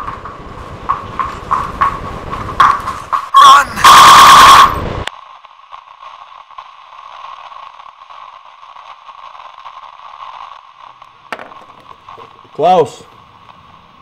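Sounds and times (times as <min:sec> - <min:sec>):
radio static hiss: 0:03.4 - 0:14.0.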